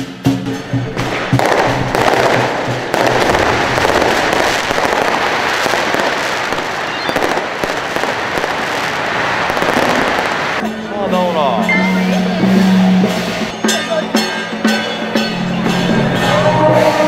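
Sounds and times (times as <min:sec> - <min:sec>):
firecrackers crackling bangs: 0:00.4 - 0:10.7.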